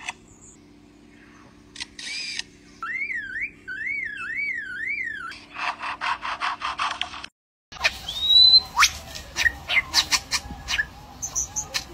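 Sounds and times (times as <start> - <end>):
bird mimicking camera shutter clicks: 1.7 - 2.5
warbling whistle: 2.8 - 5.4.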